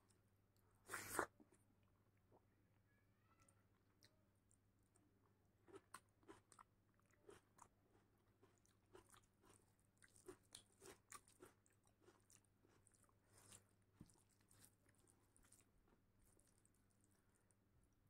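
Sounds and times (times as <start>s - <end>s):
mouth chewing: 3.8s - 17.5s.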